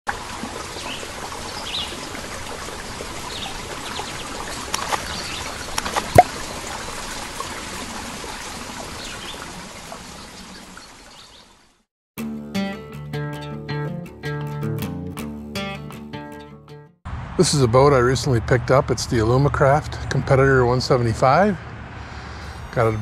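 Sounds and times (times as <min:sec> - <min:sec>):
water trickling: 0:00.1 - 0:11.7.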